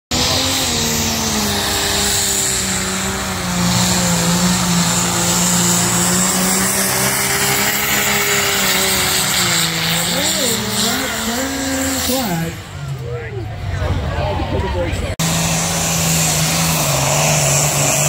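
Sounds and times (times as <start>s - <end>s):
diesel tractor engine under load: 0.1s - 18.0s.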